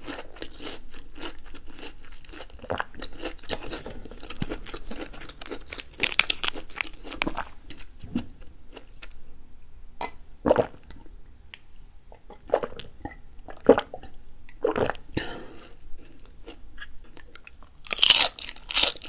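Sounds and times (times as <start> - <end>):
crunchy chewing of vegetable: 0.0 - 9.2, 15.6 - 19.0.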